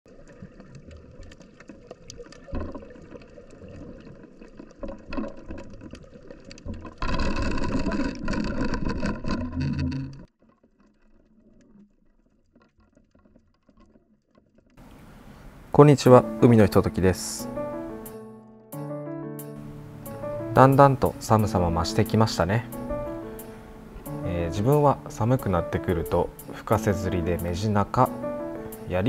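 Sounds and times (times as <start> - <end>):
underwater rumble of moving water: 0.1 - 13.9
crackles and clicks: 0.1 - 14.8.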